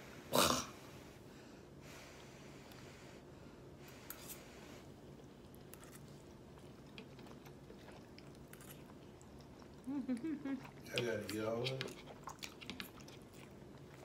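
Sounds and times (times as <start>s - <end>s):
low steady hum: 0.0s - 14.0s
people slurping and chewing noodles: 3.8s - 14.0s.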